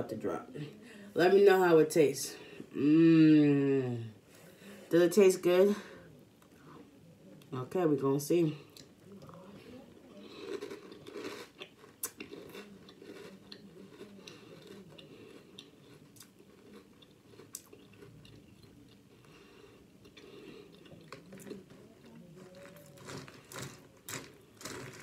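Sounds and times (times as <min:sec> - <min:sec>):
person chewing crunchy cereal: 0:08.7 - 0:25.0.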